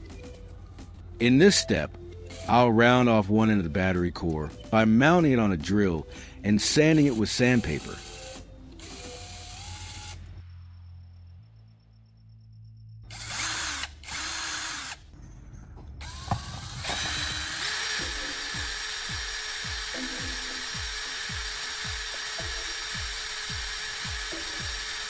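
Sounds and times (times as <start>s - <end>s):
electric drill spinning: 6.8s - 10.3s, 13.1s - 15.1s, 16.0s - 25.0s.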